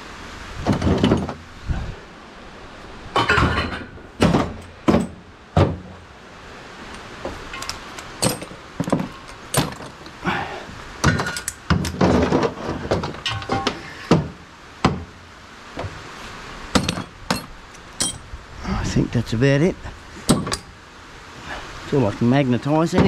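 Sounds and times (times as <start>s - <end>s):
metal knocking against metal: 3.2s - 5.9s, 16.7s - 18.2s, 20.3s - 20.7s
screws clinking onto a magnet: 16.8s - 18.2s.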